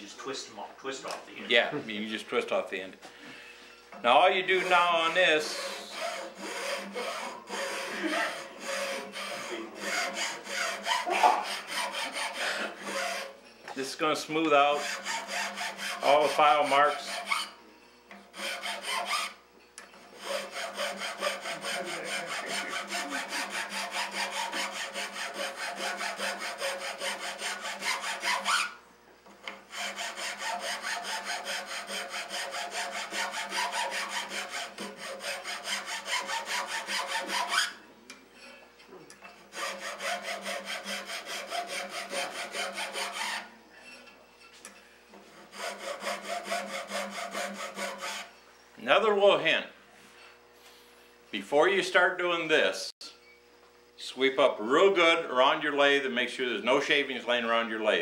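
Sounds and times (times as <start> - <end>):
file rasping on wood: 4.3 - 13.4, 14.4 - 17.6, 18.3 - 19.4, 20.1 - 28.8, 29.7 - 37.8, 39.5 - 44.0, 45.3 - 48.3.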